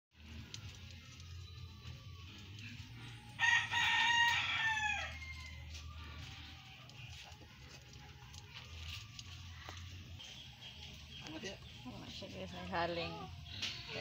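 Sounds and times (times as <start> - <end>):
rooster crowing: 3.2 - 6.1.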